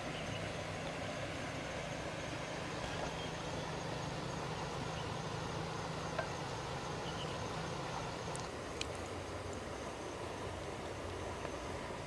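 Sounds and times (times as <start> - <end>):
constant low hum: 0.0 - 12.0
faint small clicks: 8.3 - 9.1.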